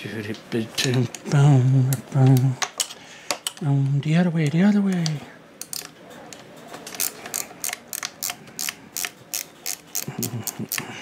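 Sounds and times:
ratchet wrench clicking: 0:06.9 - 0:10.8.

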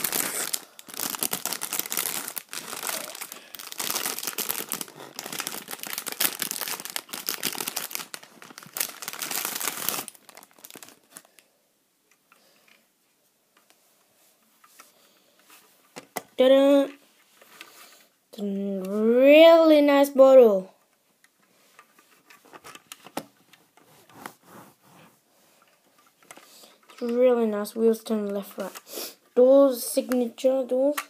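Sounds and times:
plastic wrapping crinkling: 0:00.0 - 0:11.4.

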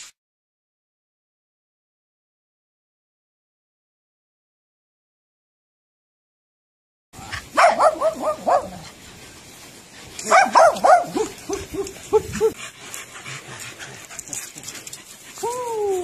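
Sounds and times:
dog yipping: 0:07.6 - 0:08.8, 0:10.2 - 0:12.6.

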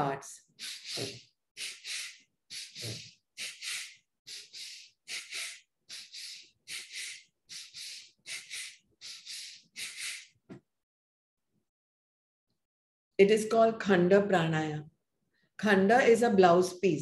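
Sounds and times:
forceful breathing: 0:00.5 - 0:10.4.

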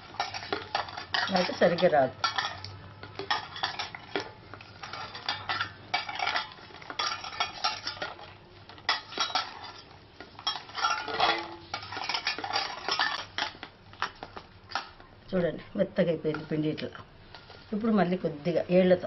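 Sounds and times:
metal bowl clattering: 0:00.0 - 0:15.0.

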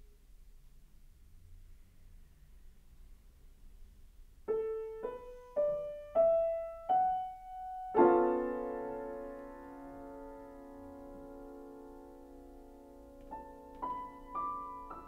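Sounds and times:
piano notes and chord: 0:04.5 - 0:15.0.

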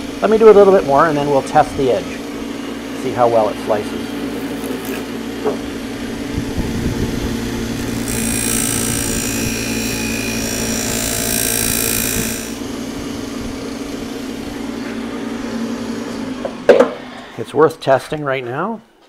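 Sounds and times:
buffing wheel motor hum: 0:00.0 - 0:16.7
blade hissing on buffing wheel: 0:07.4 - 0:12.7.

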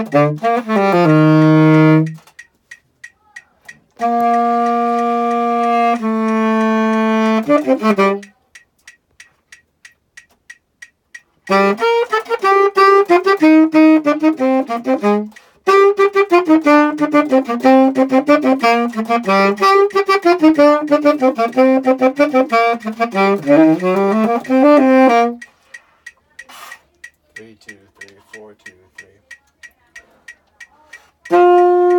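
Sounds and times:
tenor saxophone running notes: 0:00.0 - 0:02.2, 0:04.0 - 0:08.3, 0:11.5 - 0:25.5, 0:31.2 - 0:31.9
metronome ticking: 0:00.0 - 0:31.9.

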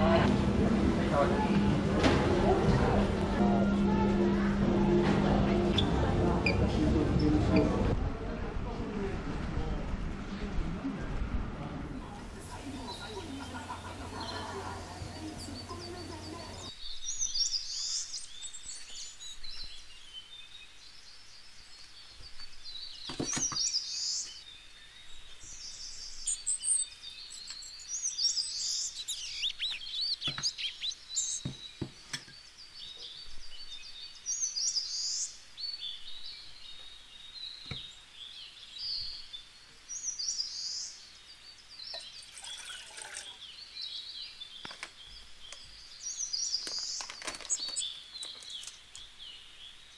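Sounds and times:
small birds chirping: 0:11.9 - 0:49.9
water poured into a pot: 0:41.9 - 0:43.4.

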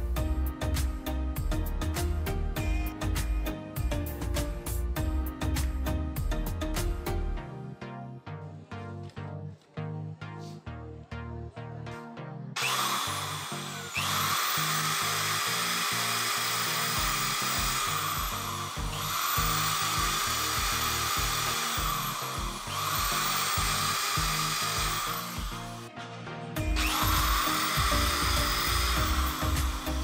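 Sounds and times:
background music: 0:00.0 - 0:30.0
electric drill drilling into plastic: 0:12.6 - 0:25.9, 0:26.6 - 0:30.0.

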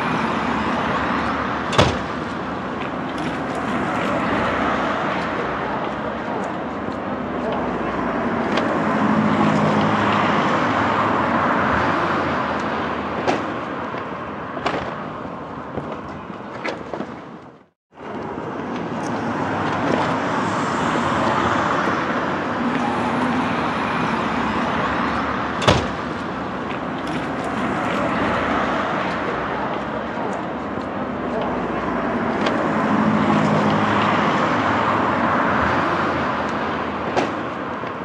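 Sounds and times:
cars passing: 0:00.0 - 0:38.0
traffic: 0:00.0 - 0:38.0.

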